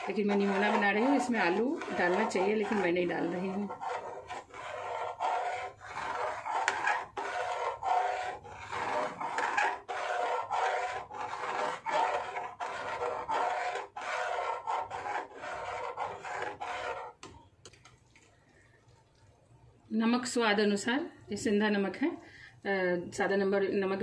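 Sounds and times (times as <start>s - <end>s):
ladle scraping metal pan: 0.0s - 17.2s.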